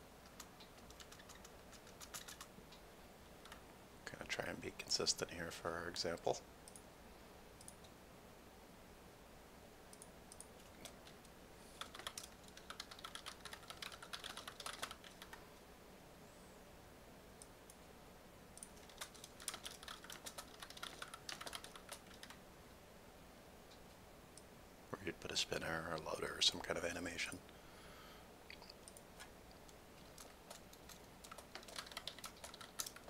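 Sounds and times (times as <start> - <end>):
typing on computer keyboard: 0.2 - 2.5, 3.4 - 3.6, 11.8 - 15.4, 18.6 - 22.4, 30.0 - 33.0.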